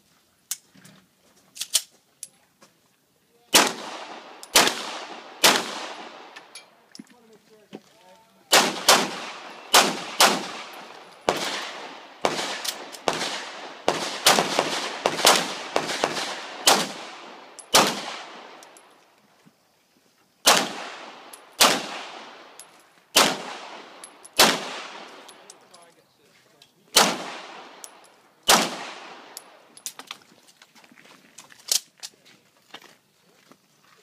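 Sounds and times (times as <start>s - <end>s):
pistol shots with echo: 3.5s - 6.4s, 8.5s - 18.8s, 20.4s - 22.6s, 23.2s - 25.6s, 26.9s - 29.6s.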